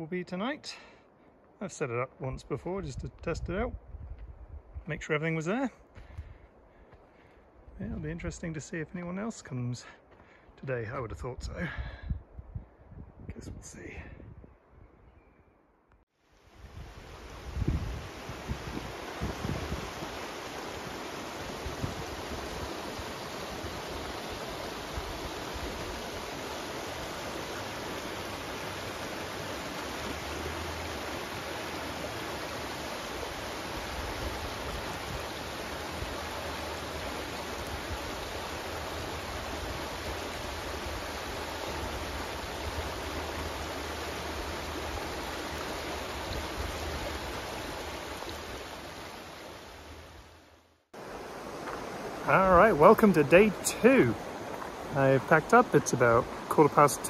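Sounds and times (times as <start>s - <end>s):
wind rumble on microphone: 2.9s - 4.9s, 11.4s - 15.1s, 16.5s - 20.2s, 21.6s - 22.7s
creek running over stones: 16.4s - 57.0s.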